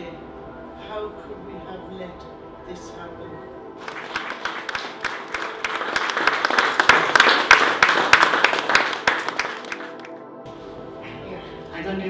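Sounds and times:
audience applauding: 0:03.8 - 0:10.2.

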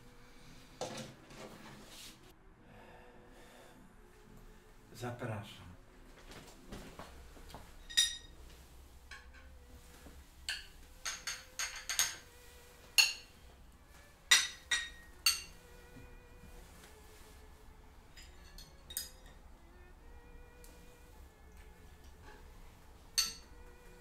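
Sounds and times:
teaspoon clinking on china: 0:10.5 - 0:12.2, 0:14.3 - 0:15.6, 0:23.2 - 0:23.5.

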